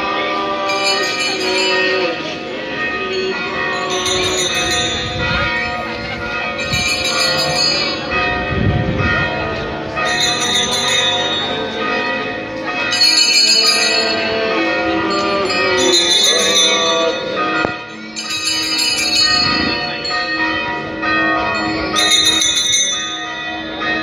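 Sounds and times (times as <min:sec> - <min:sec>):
hand bells jingling: 0:03.3 - 0:05.8, 0:06.4 - 0:08.2, 0:10.0 - 0:12.1, 0:12.8 - 0:23.4.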